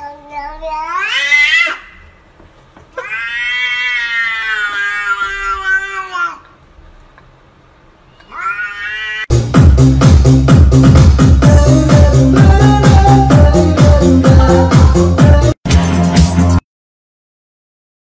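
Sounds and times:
cat yowling: 0.9 - 2.0, 3.0 - 6.4, 8.2 - 9.3
electronic dance music: 9.3 - 16.6.

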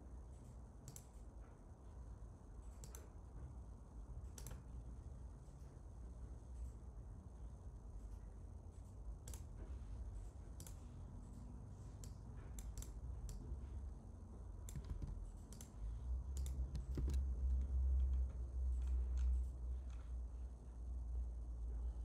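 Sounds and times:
low hum: 0.0 - 22.0
mouse and keyboard clicks: 4.3 - 4.7, 10.6 - 10.8, 12.0 - 13.4, 14.6 - 20.1.

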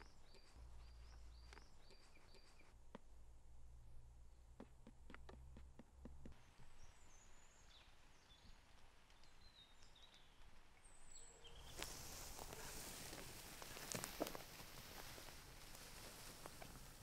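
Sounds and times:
high bird chirps: 0.0 - 2.7
steady hiss with soft ticks: 6.2 - 17.0.

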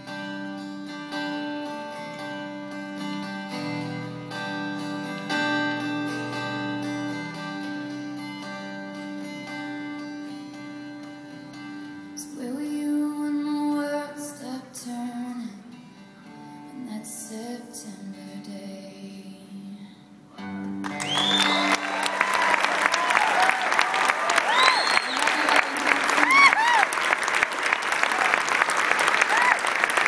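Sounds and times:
acoustic guitar picking: 0.0 - 12.8
woman singing: 12.2 - 20.2, 25.0 - 26.5.

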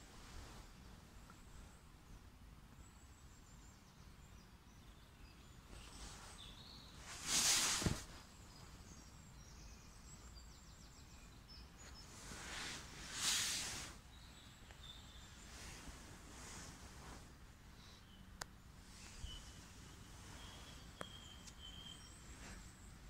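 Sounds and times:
birds chirping and trilling: 1.7 - 16.7, 17.6 - 23.0
short rushes of noise: 7.1 - 8.1.

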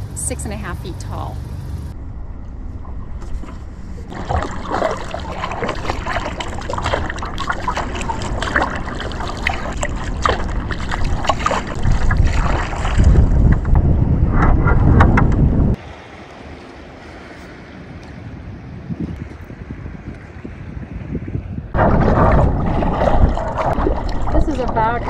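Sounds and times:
wind buffeting microphone: 1.8 - 25.0
kayak paddle splashing: 3.3 - 13.8, 21.8 - 25.0
water trickling off paddle: 3.3 - 13.8, 21.8 - 25.0.

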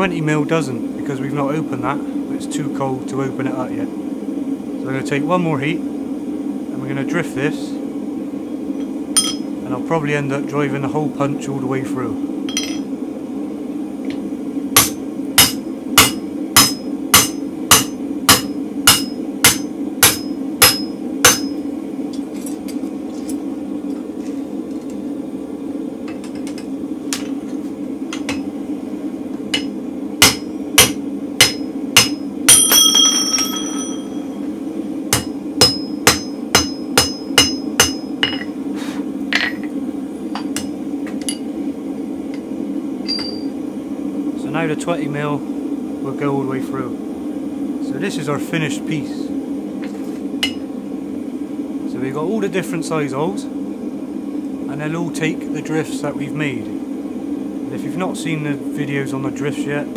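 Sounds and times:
steady low hum: 0.0 - 59.9
hammer striking steel on anvil: 9.2 - 9.5, 12.5 - 12.9, 14.8 - 21.6, 28.1 - 28.5, 29.5 - 34.3, 35.1 - 38.5, 40.4 - 41.5, 43.1 - 43.5, 50.4 - 50.6
ringing steel clang: 9.2 - 9.5, 12.5 - 12.9, 31.4 - 34.3, 43.1 - 43.5.

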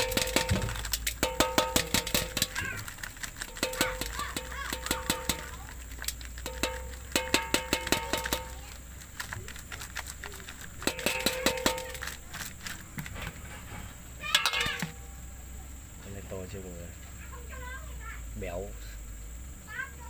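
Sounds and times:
metal colander ringing: 0.0 - 2.8, 3.4 - 5.6, 6.4 - 8.8, 10.8 - 12.2, 13.5 - 15.3
plastic bottle tapped on metal colander: 0.0 - 2.8, 3.5 - 5.6, 6.4 - 8.6, 10.8 - 12.2
grasshoppers dropping onto metal: 0.0 - 15.1.

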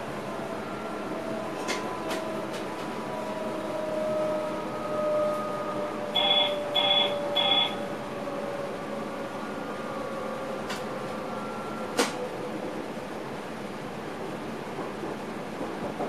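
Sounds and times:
train running hum with whine: 0.0 - 16.0
short alert beeps: 6.2 - 7.8.

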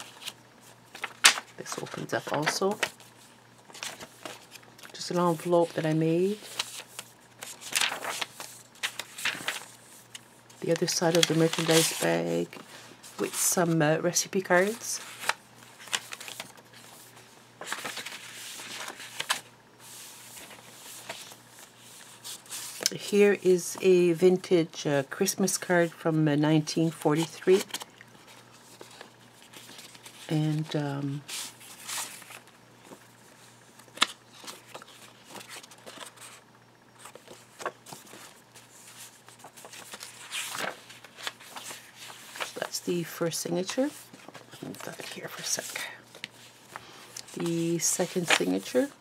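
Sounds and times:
page turning rustle: 0.0 - 22.9, 27.2 - 43.0, 43.6 - 48.9
sharp paper snap: 1.0 - 1.4.

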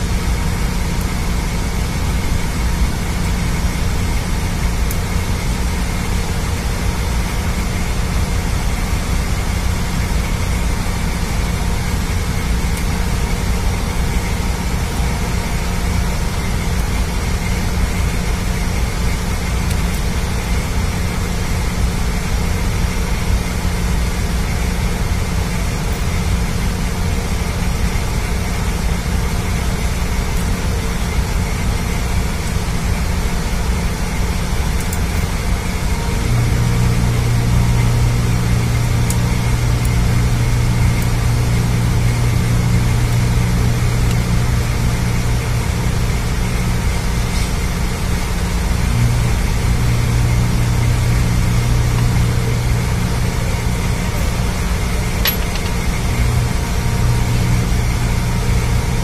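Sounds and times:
deep machine hum: 0.0 - 59.0
ship engine room machinery drone: 0.0 - 59.0.

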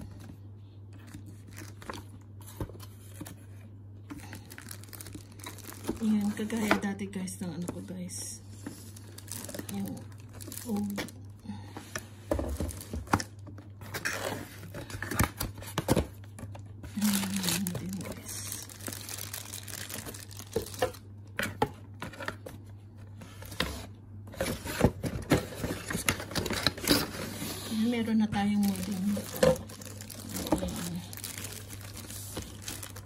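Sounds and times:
cardboard packaging rustling: 1.0 - 6.8, 8.5 - 22.6, 23.2 - 33.0
plastic bag crinkling: 4.2 - 6.7, 8.5 - 11.3, 16.9 - 21.0, 28.4 - 33.0.

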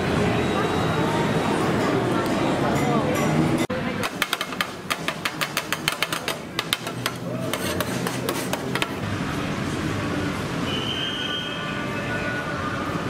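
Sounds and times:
metal spatulas clacking on griddle: 4.0 - 9.0.

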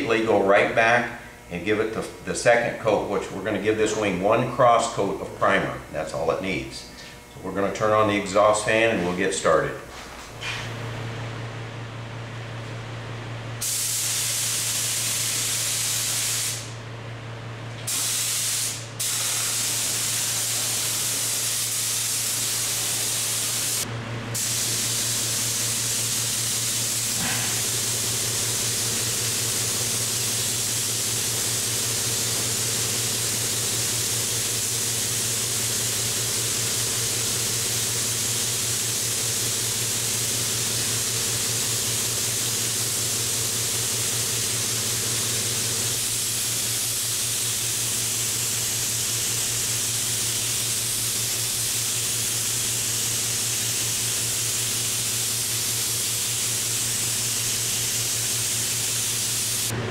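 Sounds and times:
exhaust fan hum: 0.0 - 59.9
spray gun hissing: 13.6 - 16.8, 17.9 - 23.8, 24.4 - 59.7.

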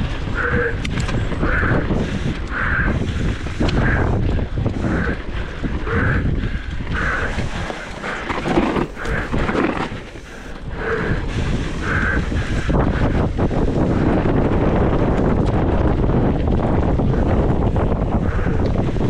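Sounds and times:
bike tyres rattling over ground: 0.0 - 19.0
wind buffeting microphone: 0.0 - 19.0.

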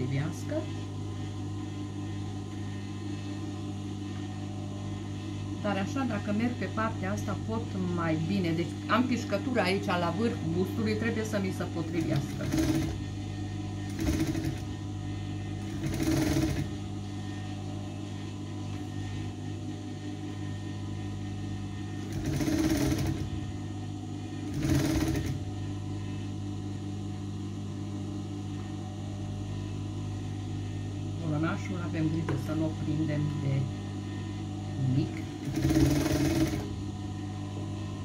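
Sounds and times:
steady low hum: 0.0 - 38.0
sewing machine stitching: 12.0 - 13.0, 13.9 - 14.7, 15.7 - 16.7, 22.1 - 23.3, 24.5 - 25.4, 35.4 - 36.7.

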